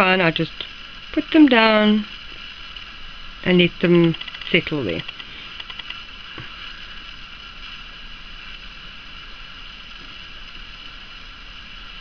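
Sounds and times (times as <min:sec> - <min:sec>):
background hiss: 0:00.0 - 0:12.0
faint constant whine: 0:00.0 - 0:12.0.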